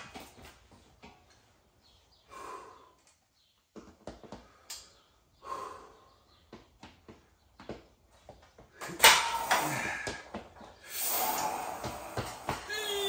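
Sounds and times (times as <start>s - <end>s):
man exhaling forcefully: 10.8s - 12.4s.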